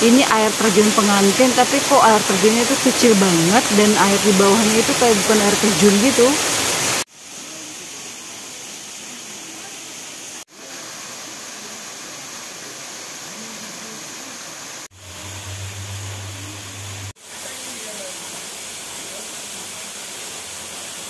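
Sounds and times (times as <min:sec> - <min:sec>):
waterfall rushing into pool: 0:00.0 - 0:21.0
low hum: 0:14.9 - 0:17.2.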